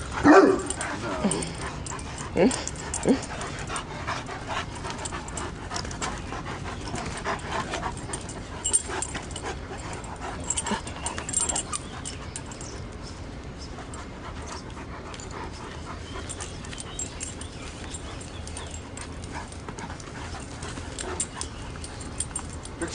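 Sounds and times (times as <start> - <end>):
dogs playing: 0.0 - 22.9.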